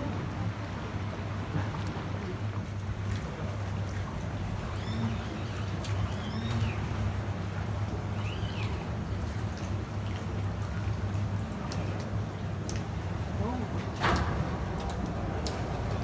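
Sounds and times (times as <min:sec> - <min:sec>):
boat engine humming: 0:00.0 - 0:16.0
bird chirps: 0:08.2 - 0:08.8.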